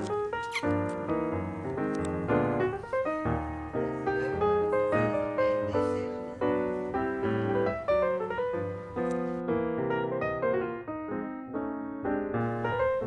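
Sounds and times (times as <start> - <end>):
piano music: 0.0 - 13.0.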